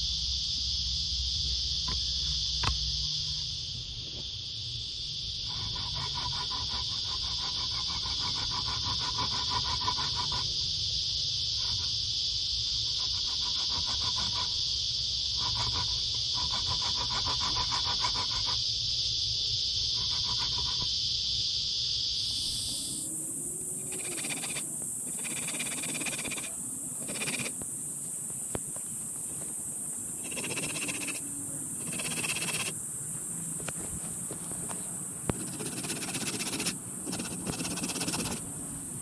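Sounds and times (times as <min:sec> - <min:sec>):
insect chorus: 0:00.0 - 0:39.0
pulsing animal call: 0:22.9 - 0:27.6, 0:30.2 - 0:32.8.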